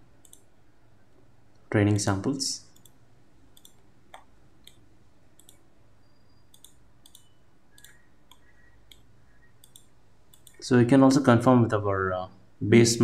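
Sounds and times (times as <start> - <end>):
computer mouse clicks: 0.2 - 0.5, 2.7 - 4.8, 5.4 - 5.7, 6.4 - 10.6.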